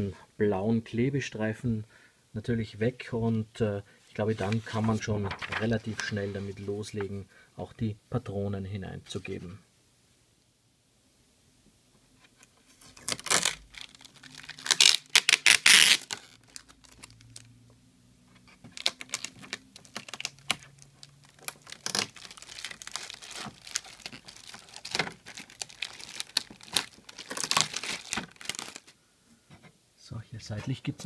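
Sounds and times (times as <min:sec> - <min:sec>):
plastic film crinkling: 0:04.4 - 0:06.1, 0:12.7 - 0:17.5, 0:18.4 - 0:29.0
tape ripping: 0:12.9 - 0:17.5, 0:18.4 - 0:28.9.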